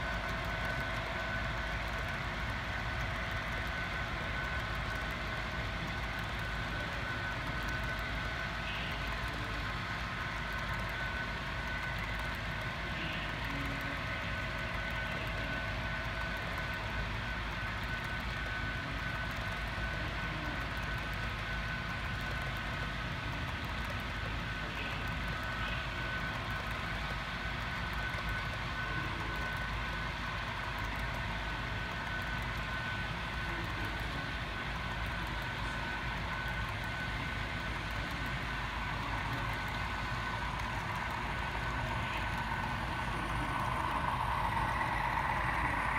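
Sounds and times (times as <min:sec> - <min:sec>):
model train rumbling: 0:00.0 - 0:45.9
thin high whine: 0:23.8 - 0:45.9.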